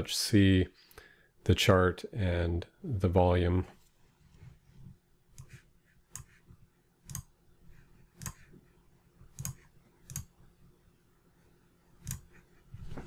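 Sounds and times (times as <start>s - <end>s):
computer mouse clicks: 5.3s - 6.4s, 7.0s - 7.3s, 8.1s - 8.6s, 9.2s - 10.4s, 12.0s - 12.4s.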